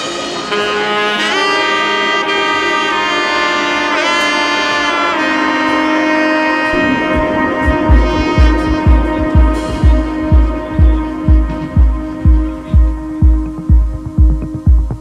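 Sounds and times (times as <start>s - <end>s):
melody of long bending notes: 0.0s - 15.0s
low drum beats: 6.7s - 15.0s.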